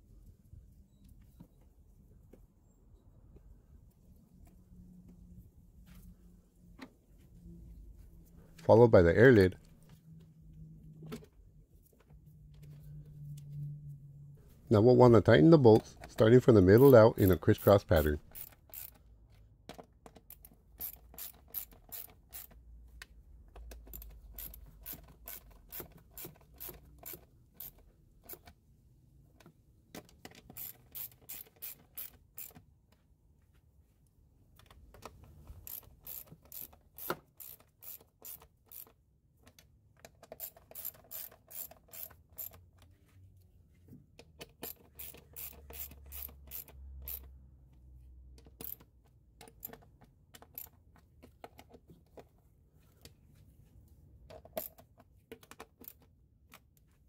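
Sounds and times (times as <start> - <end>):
hand ratchet clicking: 16.1 - 19.0, 20.2 - 22.6, 23.7 - 28.5, 30.5 - 32.6, 35.6 - 39.0, 40.2 - 42.6, 44.6 - 47.3, 48.5 - 49.8.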